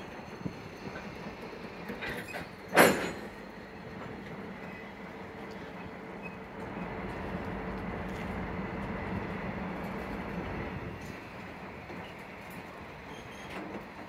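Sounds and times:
railcars rolling on track: 0.0s - 14.0s.

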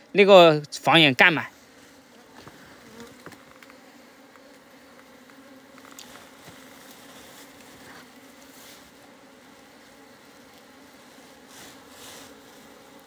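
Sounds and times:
bees humming: 0.0s - 13.0s.

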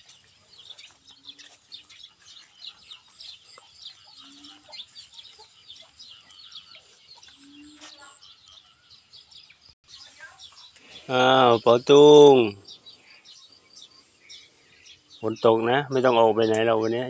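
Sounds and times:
low bird calls: 0.0s - 17.0s
small birds chirping: 0.0s - 17.0s.

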